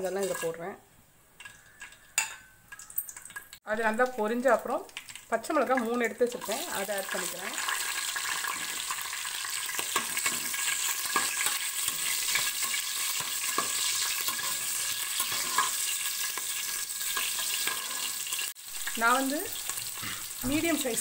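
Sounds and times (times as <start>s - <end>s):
metal spoon scraping pan: 0.0s - 0.7s, 9.7s - 18.5s
spices sizzling in oil: 0.0s - 21.0s.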